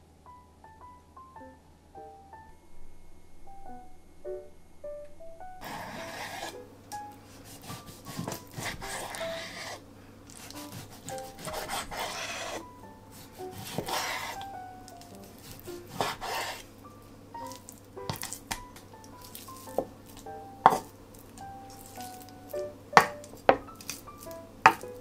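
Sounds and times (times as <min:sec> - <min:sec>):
soft background music: 0:00.0 - 0:25.0
knife slicing raw meat: 0:05.6 - 0:06.6, 0:07.4 - 0:12.6, 0:13.2 - 0:14.5, 0:15.2 - 0:16.7.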